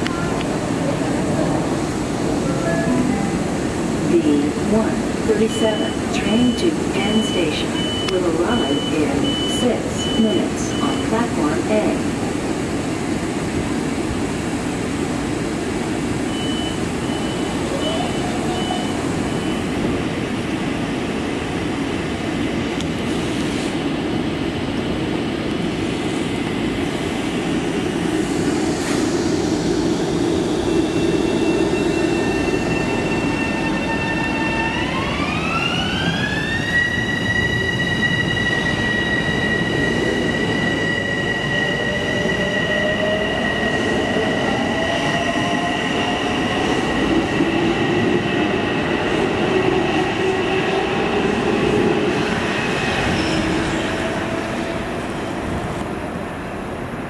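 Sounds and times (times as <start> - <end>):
train propulsion whine: 26.4 - 55.8.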